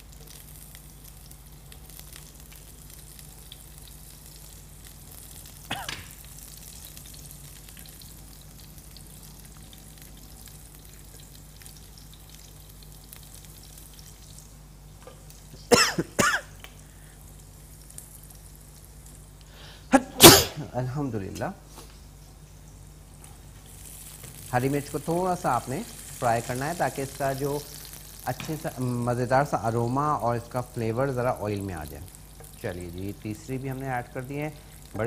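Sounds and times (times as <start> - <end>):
chilli frying in oil: 0.0 - 35.0
person coughing: 5.7 - 6.1, 15.7 - 16.5, 19.9 - 20.7.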